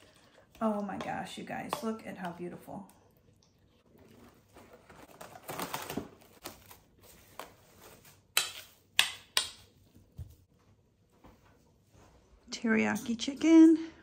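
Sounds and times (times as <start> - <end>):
plastic cling wrap crinkling: 3.9 - 8.3.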